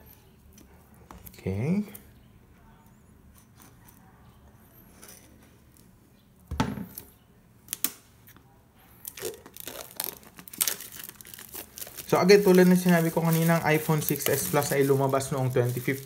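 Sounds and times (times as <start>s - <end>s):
plastic film crinkling: 9.0s - 16.0s
knife cutting plastic wrap: 9.1s - 16.0s.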